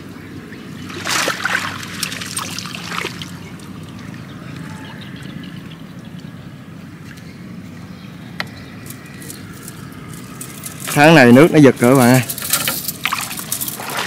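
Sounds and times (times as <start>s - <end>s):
steady low hum: 0.0s - 14.0s
water splashing and trickling: 0.6s - 5.8s, 8.9s - 14.0s.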